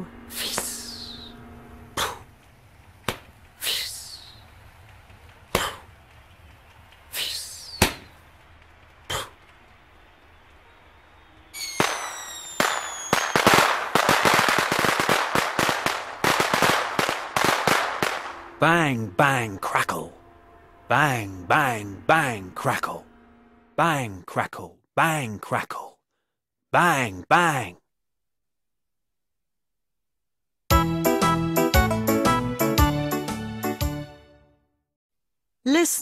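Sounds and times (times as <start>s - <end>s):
firework whistles: 7.2s - 8.2s, 10.1s - 14.6s
firework bangs: 11.5s - 18.6s
fireworks crackling and popping: 11.6s - 18.5s.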